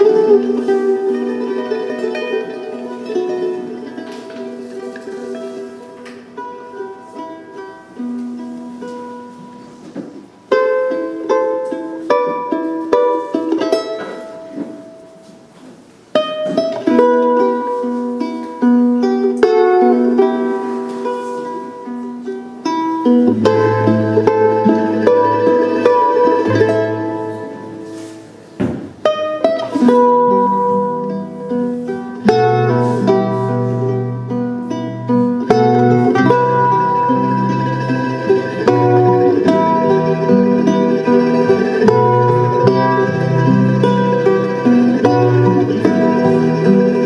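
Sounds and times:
plucked string instruments: 0.0s - 47.0s.

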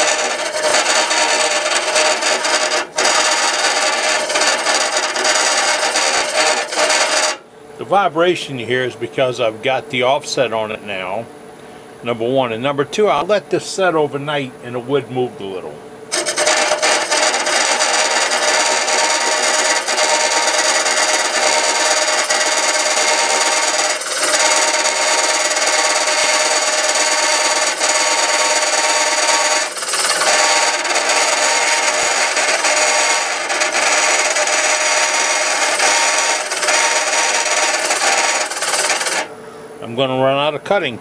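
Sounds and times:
cutter scraping wood on lathe: 0.0s - 7.4s, 16.1s - 39.3s.

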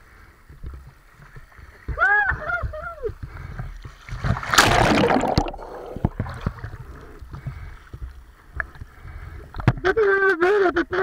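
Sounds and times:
water splash: 4.1s - 6.7s.

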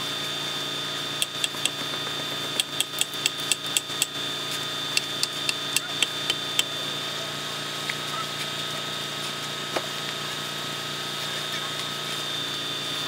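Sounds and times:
truck engine running: 0.9s - 13.0s
sharp tool clicks: 1.2s - 4.2s, 4.9s - 6.8s.

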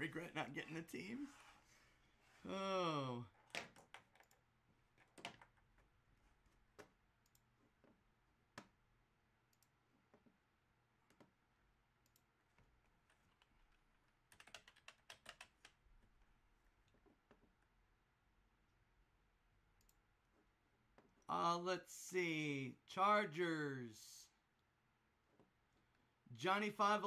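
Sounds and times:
faint clicks: 12.0s - 12.3s, 19.8s - 20.0s.

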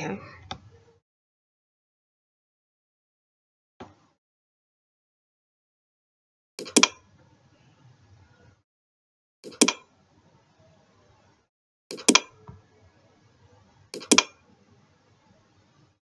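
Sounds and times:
computer mouse clicking: 6.6s - 7.0s, 9.4s - 9.8s, 11.9s - 12.3s, 14.0s - 14.4s.

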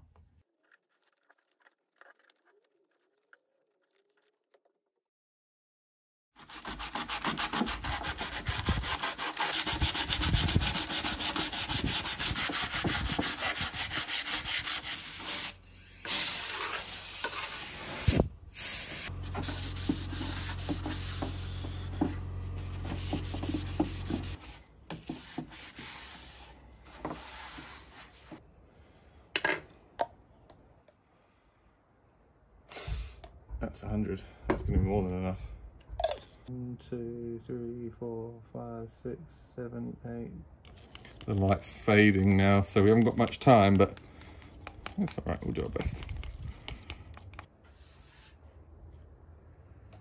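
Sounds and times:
sandpaper rubbing on wood: 6.4s - 22.0s, 22.7s - 26.6s.

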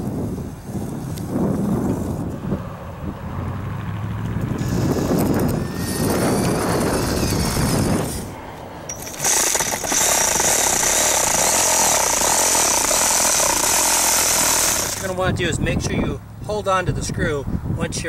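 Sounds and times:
reciprocating saw cutting: 4.6s - 15.2s.

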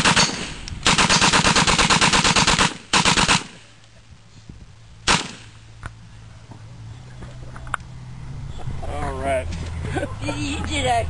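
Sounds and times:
machine gun firing: 0.0s - 3.7s, 5.1s - 5.5s.

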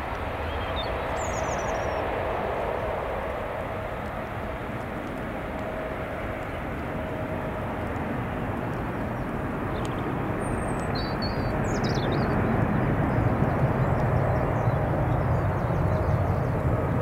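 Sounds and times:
jet engines roaring: 0.0s - 17.0s
bird chirps: 9.7s - 12.4s.

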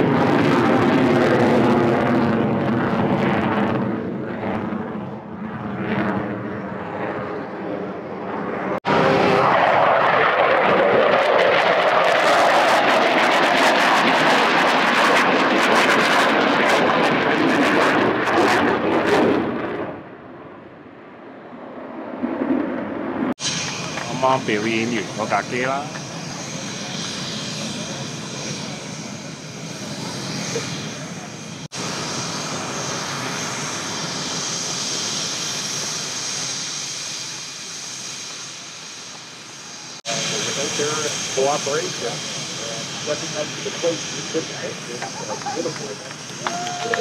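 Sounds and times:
aircraft engine roar: 0.0s - 47.0s.

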